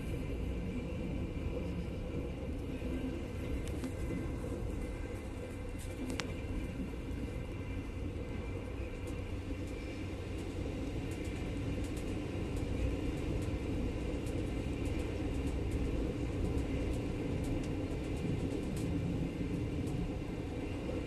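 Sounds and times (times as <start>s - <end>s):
train wheels rumbling on rails: 0.0s - 21.0s
faint ticks: 5.8s - 6.4s.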